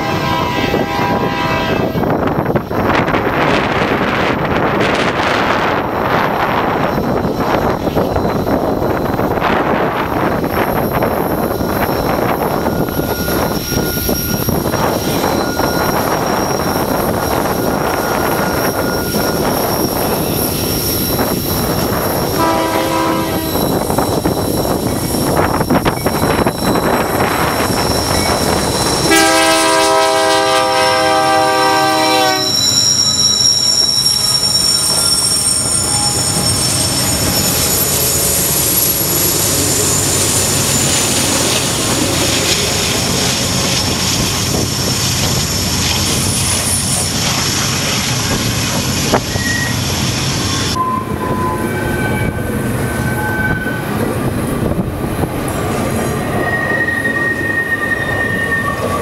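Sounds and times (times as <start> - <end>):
locomotive horn blast: 0.0 - 2.1, 22.4 - 23.6, 29.0 - 32.6
train rumbling past: 0.0 - 59.0
wheel squeal: 5.2 - 29.4, 32.3 - 54.2, 55.4 - 59.0.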